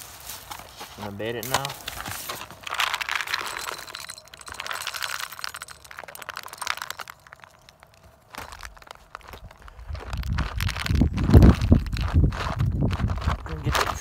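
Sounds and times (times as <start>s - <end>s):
pellets pattering onto metal trap: 1.3s - 7.9s.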